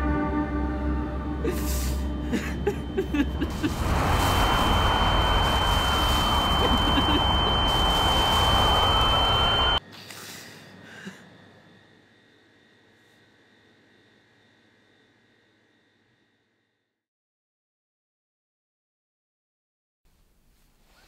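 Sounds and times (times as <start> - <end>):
high-pitched ringing tone: 0.5 - 9.8
dense rush of noise: 1.4 - 9.9.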